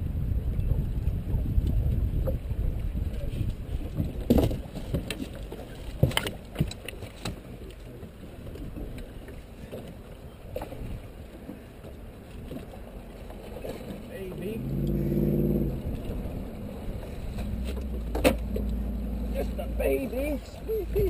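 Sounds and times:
boat engine rumbling: 0.0 - 21.0.

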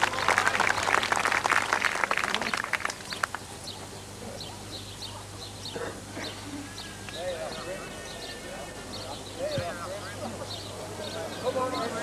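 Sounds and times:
spectators clapping: 0.0 - 3.5
small birds chirping: 3.1 - 12.0.

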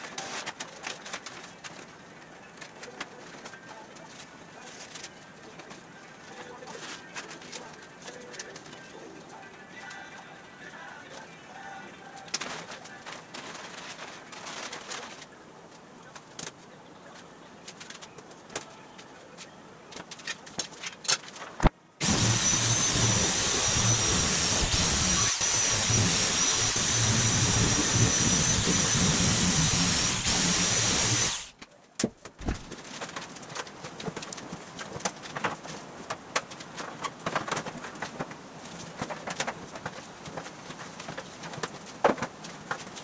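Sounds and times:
quiet rustling: 0.0 - 11.4, 12.0 - 21.6
power shears cutting metal sheet: 22.0 - 31.6.

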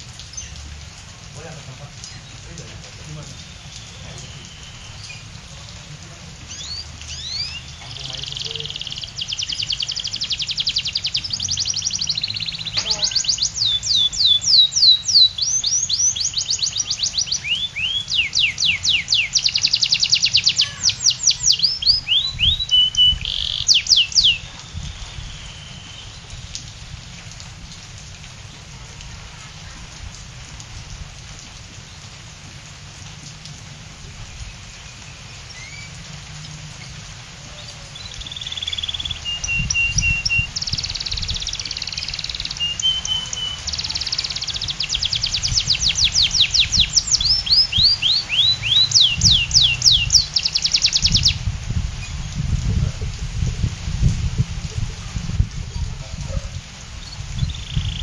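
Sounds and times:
faint steady hiss: 0.0 - 55.9
canary singing: 6.5 - 26.3, 37.7 - 51.4, 57.4 - 58.0.

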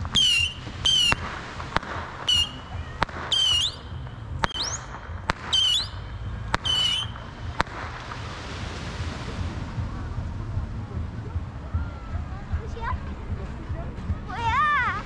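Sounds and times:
firework whistles: 0.0 - 8.0
firework pops: 0.0 - 8.4.

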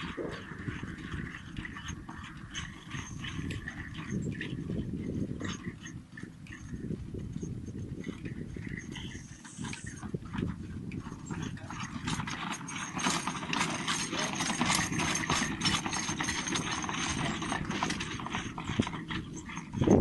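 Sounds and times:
horse hoofbeats trotting: 0.0 - 20.0
carriage and harness rattling: 7.9 - 20.0.

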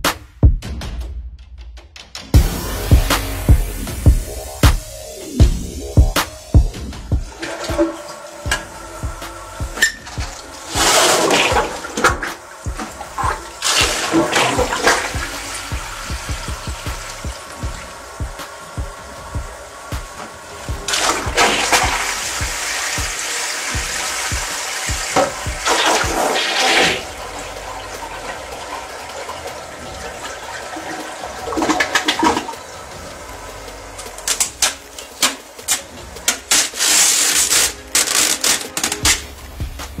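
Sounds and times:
toilet flushing: 2.3 - 40.0
plastic film clicking and crackling: 34.2 - 39.3.

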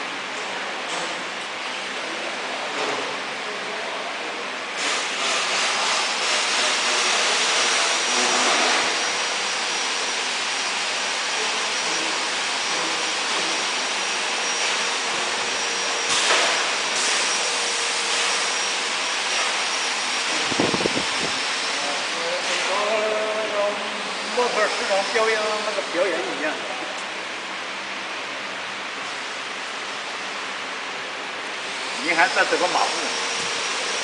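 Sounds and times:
hissing machinery noise: 4.8 - 34.0
high steady whine: 6.0 - 34.0.

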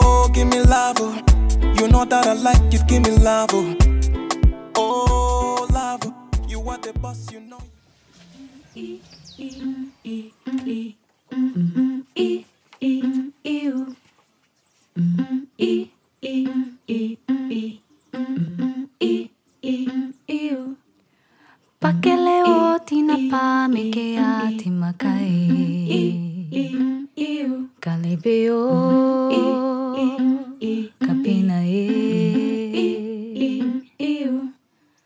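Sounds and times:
person humming: 0.0 - 3.8, 8.8 - 13.3, 15.0 - 17.6, 18.2 - 20.1, 24.2 - 26.8, 28.6 - 33.8
layered voices singing: 0.0 - 7.4, 8.3 - 14.1, 15.0 - 20.8, 21.8 - 34.6.

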